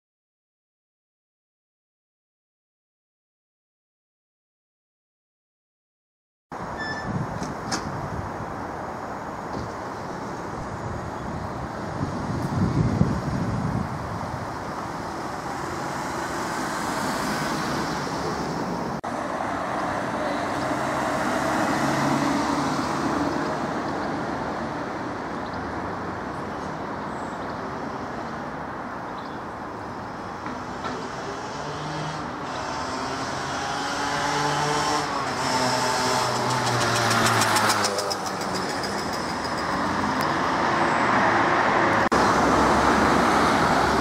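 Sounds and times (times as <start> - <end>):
cars passing: 7.5 - 44.0
vehicle engine hum: 29.9 - 44.0.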